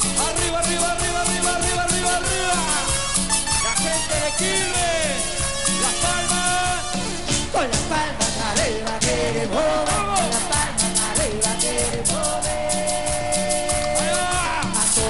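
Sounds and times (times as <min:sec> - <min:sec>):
bending lead melody: 0:00.0 - 0:08.6
percussion beat: 0:00.0 - 0:15.0.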